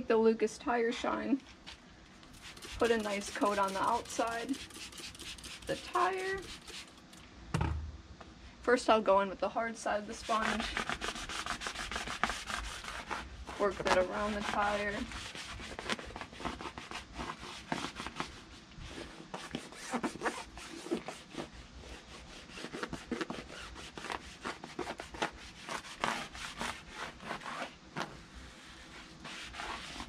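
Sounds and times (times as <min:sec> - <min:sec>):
sponge scrubbing rubber tire: 0:02.3 - 0:07.0, 0:10.1 - 0:27.8, 0:28.5 - 0:30.0.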